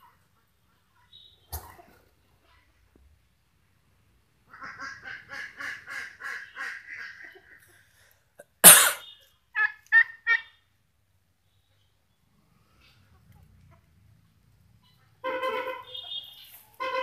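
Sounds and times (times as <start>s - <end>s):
loud puff of noise: 8.6s - 9.0s
turkey gobbling: 9.6s - 10.5s.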